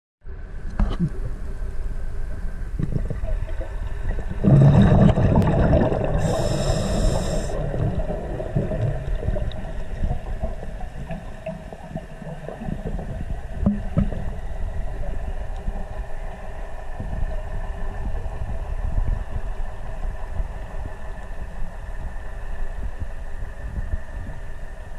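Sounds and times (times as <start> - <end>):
underwater rumble: 0.2 - 24.9
water gurgling gush: 2.8 - 14.4.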